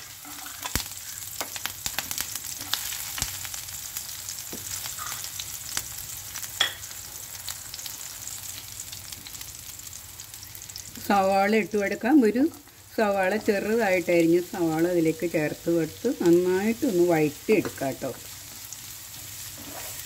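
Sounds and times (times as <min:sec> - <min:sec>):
food sizzling in hot oil: 0:00.0 - 0:20.0
spatula scraping pan: 0:19.1 - 0:20.0.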